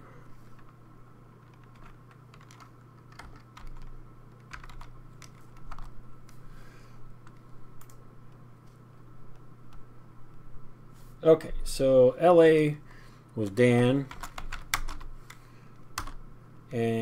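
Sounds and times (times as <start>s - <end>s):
low steady hum: 0.0s - 17.0s
keyboard keystrokes: 1.4s - 5.9s.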